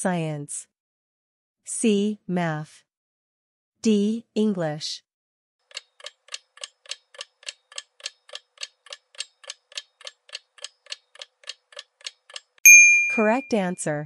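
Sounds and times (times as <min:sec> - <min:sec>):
clock ticking: 0:05.7 - 0:12.5.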